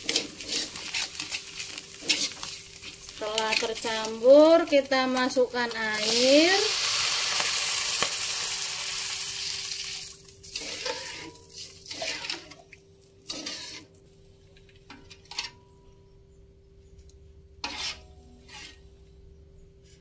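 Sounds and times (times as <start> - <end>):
metal spoon scraping wok: 0.0 - 4.2, 10.4 - 13.9, 17.6 - 19.0
water sizzling in hot oil: 0.0 - 12.5.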